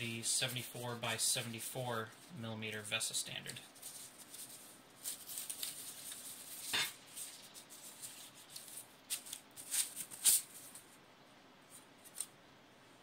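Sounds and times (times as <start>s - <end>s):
packaging wrap rustling: 3.4s - 10.9s.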